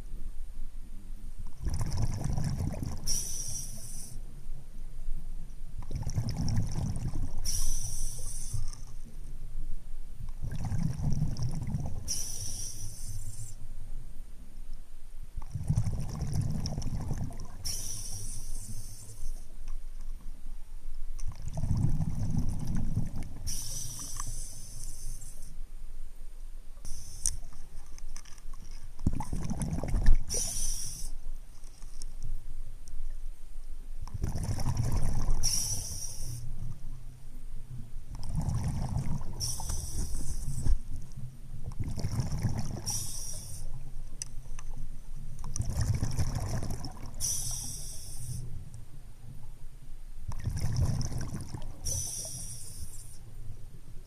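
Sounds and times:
diver exhaling bubbles underwater: 0:01.6 - 0:03.3, 0:05.9 - 0:07.8, 0:10.4 - 0:12.3, 0:15.5 - 0:18.0, 0:29.0 - 0:31.0, 0:34.1 - 0:36.2, 0:38.2 - 0:40.8, 0:41.8 - 0:43.6, 0:45.6 - 0:48.1, 0:50.3 - 0:52.5
diver's hissing breath: 0:03.0 - 0:04.2, 0:07.4 - 0:08.9, 0:12.0 - 0:13.6, 0:17.6 - 0:19.5, 0:23.4 - 0:25.6, 0:26.8 - 0:27.5, 0:30.3 - 0:31.2, 0:35.4 - 0:36.5, 0:39.3 - 0:40.8, 0:42.8 - 0:43.8, 0:47.2 - 0:48.5, 0:51.8 - 0:53.2.

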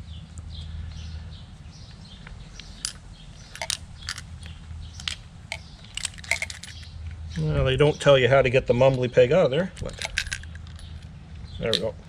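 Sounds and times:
metal parts clicking: 0:02.6 - 0:07.0, 0:09.7 - 0:11.9.

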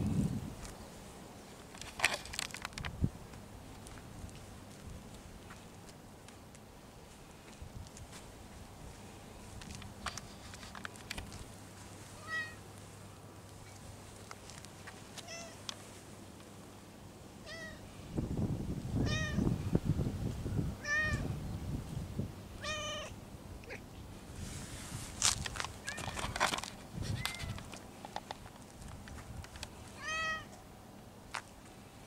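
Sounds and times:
cat meowing quietly: 0:12.2 - 0:12.6, 0:15.2 - 0:15.6, 0:20.8 - 0:21.3, 0:22.6 - 0:23.8, 0:30.0 - 0:30.6.

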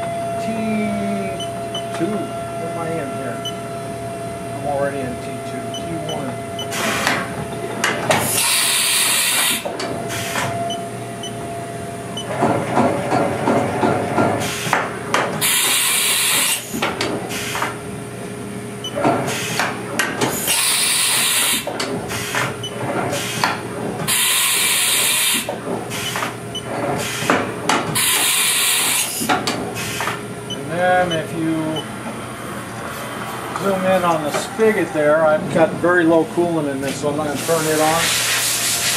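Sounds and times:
steady machine hum: 0:00.0 - 0:37.9
tool changer clunks and rattling: 0:06.6 - 0:08.5, 0:12.2 - 0:15.4, 0:18.8 - 0:20.4, 0:21.7 - 0:24.2
compressed air hisses: 0:29.8 - 0:30.1, 0:37.4 - 0:38.9.

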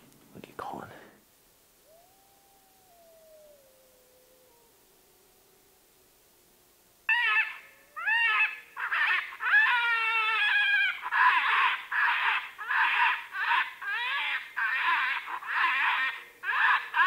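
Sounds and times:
predator call squeals and wails: 0:07.1 - 0:17.0.

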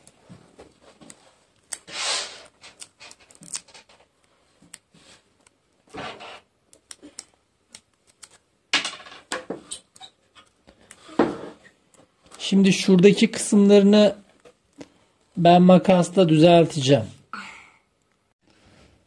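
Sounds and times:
card and tape crinkling: 0:01.0 - 0:05.6, 0:06.8 - 0:08.4.

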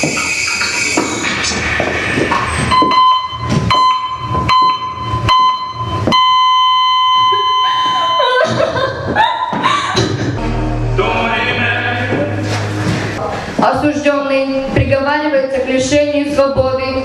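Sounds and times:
heart monitor flat tone: 0:02.6 - 0:08.4
heart monitor beeping: 0:02.6 - 0:08.5.

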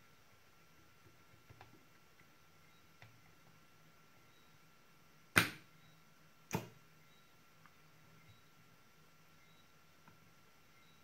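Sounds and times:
faint high whine: 0:02.4 - 0:11.0.

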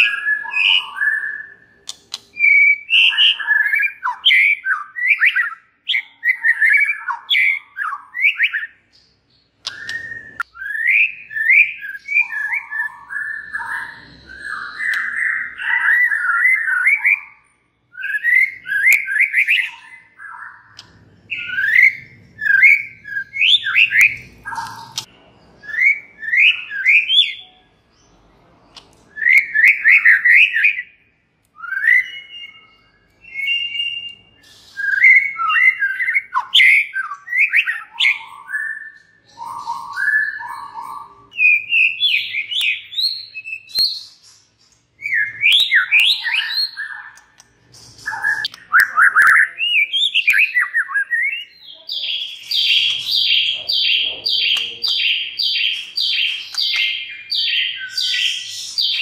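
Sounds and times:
songbird singing: 0:00.0 - 0:59.0
sharp bird clicks: 0:01.8 - 0:04.2, 0:08.9 - 0:10.5, 0:14.8 - 0:15.3, 0:20.3 - 0:21.9, 0:23.4 - 0:25.1, 0:28.7 - 0:29.3, 0:43.7 - 0:49.4, 0:54.0 - 0:57.1.

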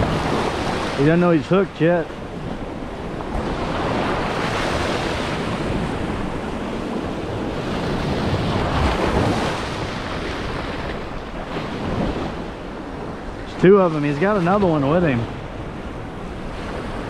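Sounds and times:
wind blowing across microphone: 0:00.0 - 0:17.0.

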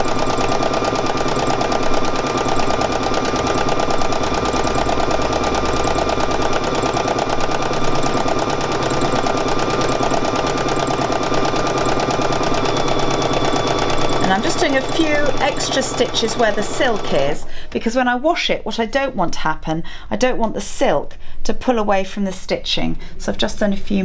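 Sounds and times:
sewing machine running fast: 0:00.0 - 0:17.4.

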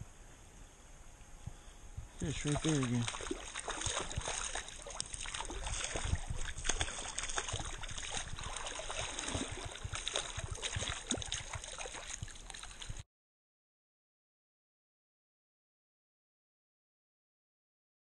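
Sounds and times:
stream rushing: 0:02.2 - 0:12.9
fish thrashing and splashing: 0:02.2 - 0:13.0.

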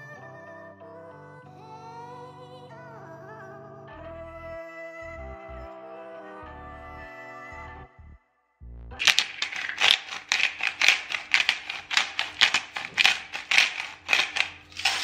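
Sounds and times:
pepper grinder grinding: 0:09.0 - 0:15.0.

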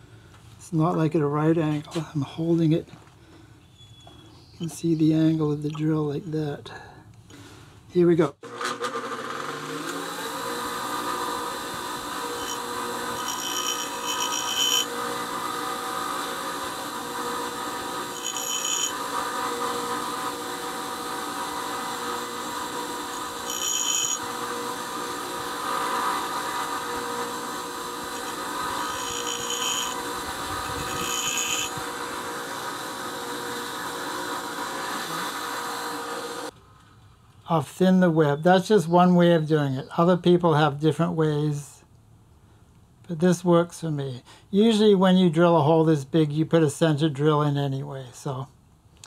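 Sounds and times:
bench grinder running: 0:08.4 - 0:36.5
drill bit grinding on wheel: 0:08.6 - 0:36.5.

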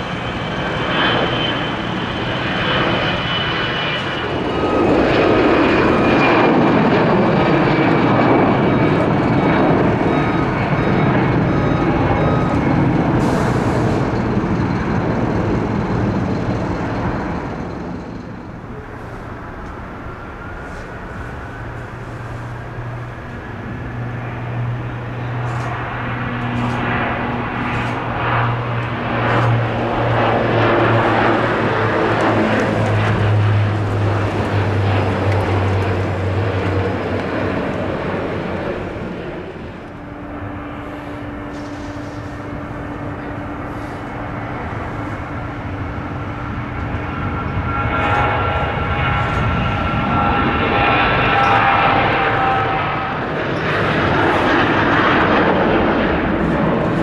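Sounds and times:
jet airliner take-off roar: 0:00.0 - 0:57.0
turboprop plane taking off: 0:00.0 - 0:57.0.

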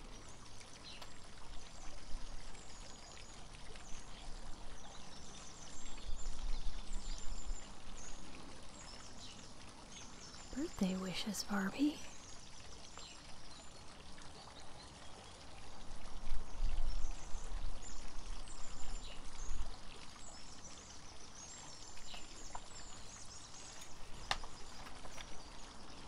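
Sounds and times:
water fountain trickling: 0:00.0 - 0:26.0
faint bird chirps: 0:16.6 - 0:26.0.

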